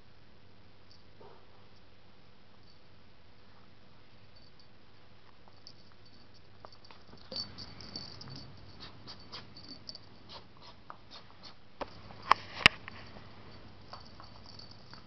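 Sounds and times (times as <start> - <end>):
puppy paws clicking and scuffing: 5.3 - 15.0.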